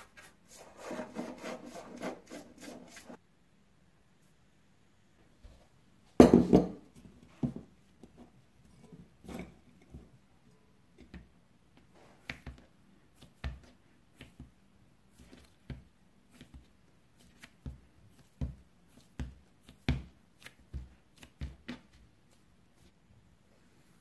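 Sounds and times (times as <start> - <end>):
hands patting pie dough: 11.1 - 23.0.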